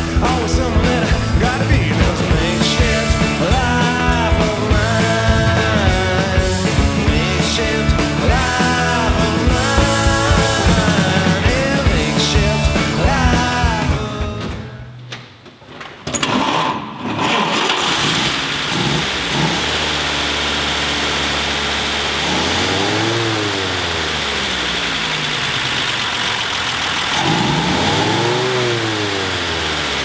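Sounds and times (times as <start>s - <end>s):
truck engine idling: 0.0s - 14.8s, 17.8s - 30.0s
rock music with singing: 0.0s - 15.4s, 22.2s - 30.0s.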